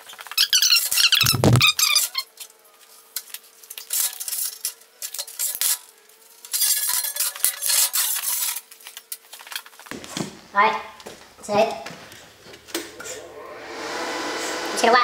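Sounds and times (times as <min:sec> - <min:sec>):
metal clinking and scraping: 0:03.2 - 0:09.9.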